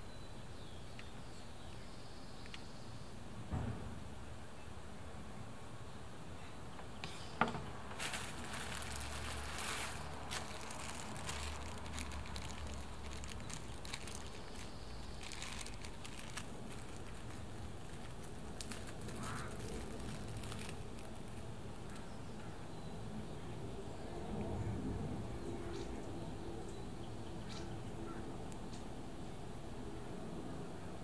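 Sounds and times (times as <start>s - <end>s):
plastic wrapping rustling: 7.9s - 22.1s.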